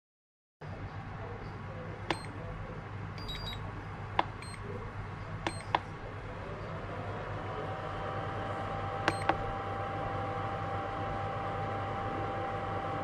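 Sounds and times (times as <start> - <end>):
steady low hum: 0.6 - 13.0
faint whine: 0.7 - 13.0
charger short beeps: 2.1 - 2.4, 3.2 - 3.7, 4.4 - 4.7, 5.5 - 5.8.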